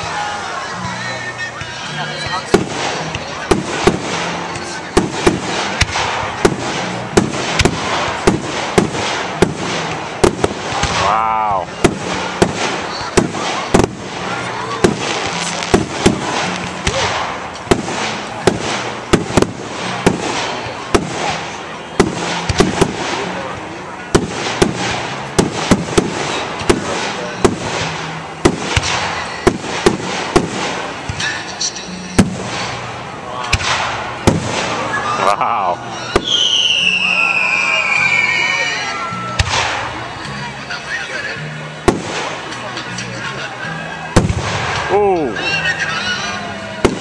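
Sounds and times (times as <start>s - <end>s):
fireworks bangs: 0.0s - 47.0s
fireworks hiss: 2.5s - 23.5s, 24.1s - 35.2s.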